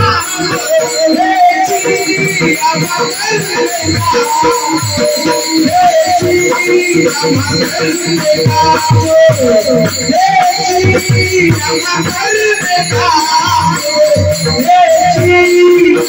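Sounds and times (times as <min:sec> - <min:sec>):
group of men singing: 0:00.0 - 0:16.0
hand cymbals jingling: 0:00.0 - 0:16.0.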